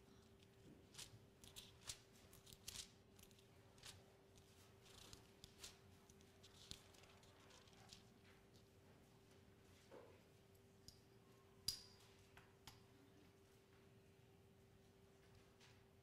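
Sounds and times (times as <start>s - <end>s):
steady faint hum: 0.0s - 16.0s
thin paper pages turning: 0.9s - 4.0s, 4.8s - 5.8s, 6.4s - 8.1s.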